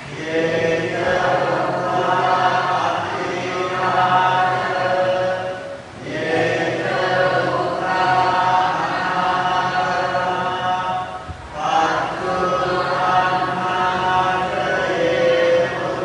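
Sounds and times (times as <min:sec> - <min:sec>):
group chanting in unison: 0:00.0 - 0:16.0.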